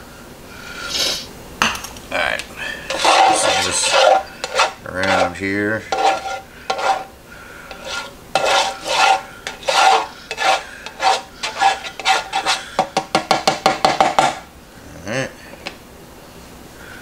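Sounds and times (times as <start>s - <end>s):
spatula scraping griddle plate: 2.8s - 12.9s.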